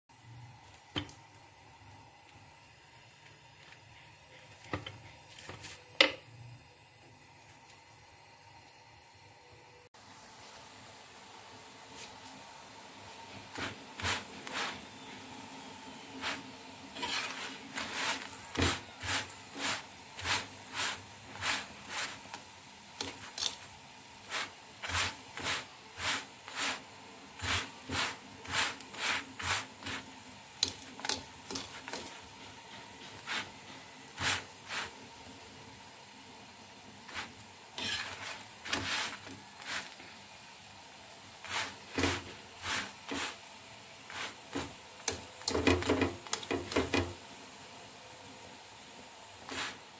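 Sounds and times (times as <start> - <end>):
spatula scraping on griddle: 13.5 - 15.2, 16.2 - 22.4, 23.0 - 35.0, 37.1 - 40.1, 41.4 - 47.1, 49.4 - 49.9.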